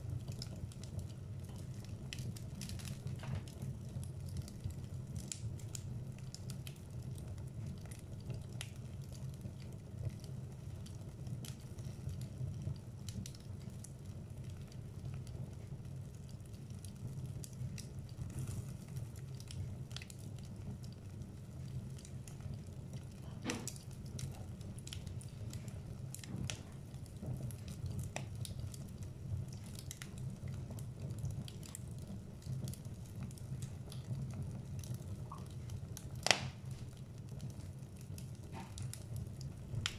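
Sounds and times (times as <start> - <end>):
fire crackling and popping: 0.0 - 39.9
fire rumbling: 0.0 - 39.9.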